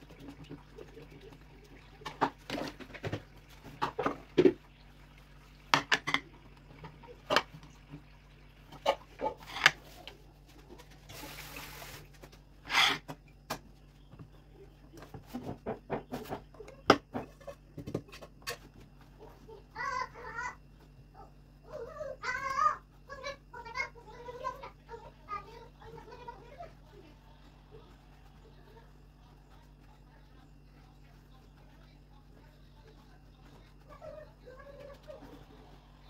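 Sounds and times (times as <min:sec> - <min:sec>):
plates and pan clinking: 0:05.7 - 0:06.3.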